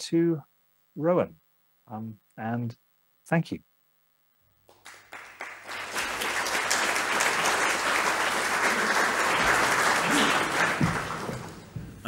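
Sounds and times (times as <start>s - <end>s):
audience applause: 4.7s - 11.8s.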